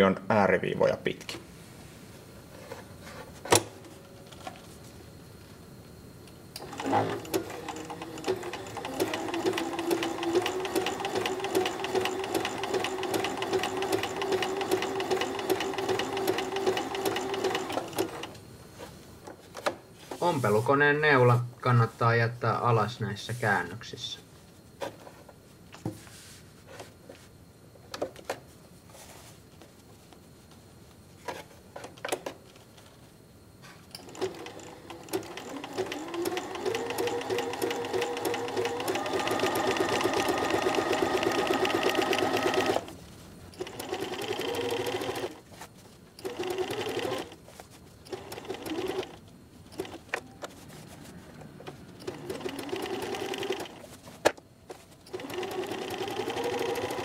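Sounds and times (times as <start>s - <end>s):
electric sewing machine stitching: 6.6s - 18.4s, 34.0s - 42.9s, 43.6s - 45.4s, 46.2s - 47.4s, 48.1s - 49.2s, 52.0s - 53.8s, 55.1s - 57.0s.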